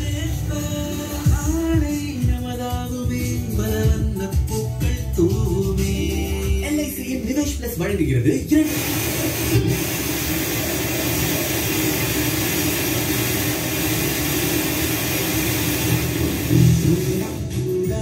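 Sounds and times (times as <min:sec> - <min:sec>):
radio static hiss: 0:08.6 - 0:17.5.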